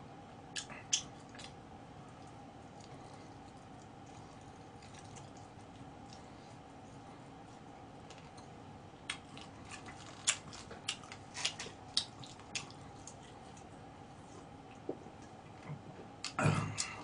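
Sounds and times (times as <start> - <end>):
eating clicks and smacks: 0.5 - 6.3, 8.1 - 13.7.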